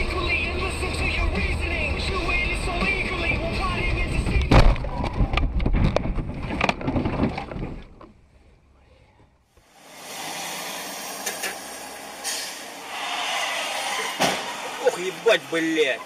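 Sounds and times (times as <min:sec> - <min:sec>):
tyres hissing on wet road: 0:09.7 - 0:16.0.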